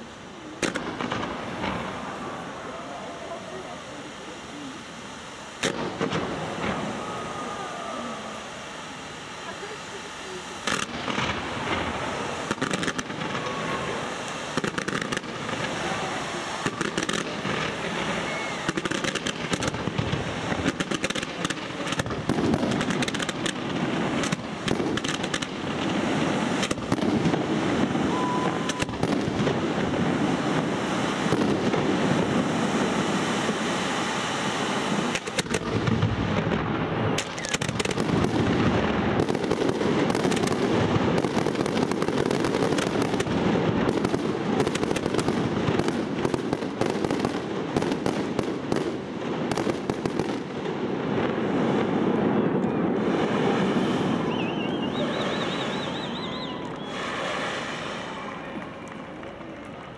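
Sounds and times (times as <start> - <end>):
fireworks bangs and crackling: 0.0 - 59.9.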